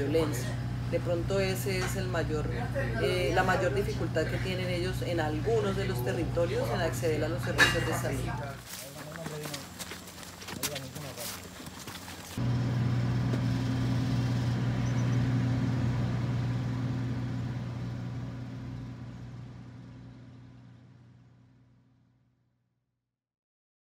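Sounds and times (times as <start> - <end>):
low engine drone: 0.0 - 8.6, 12.2 - 22.1.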